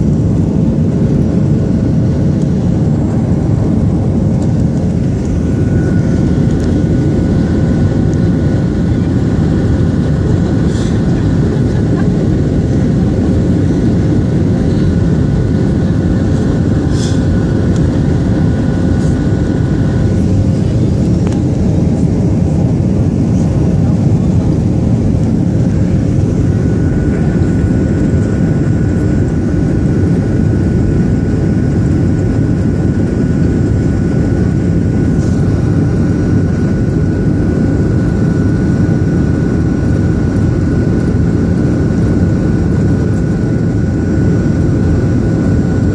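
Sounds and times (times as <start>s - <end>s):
faint steady whine: 0.0s - 45.9s
jet engine and airflow roar: 0.0s - 45.9s.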